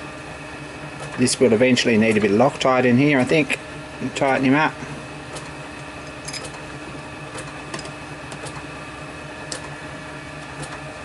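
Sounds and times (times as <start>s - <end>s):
steady background hum: 0.0s - 11.0s
metal parts clicking and tapping: 6.2s - 6.6s.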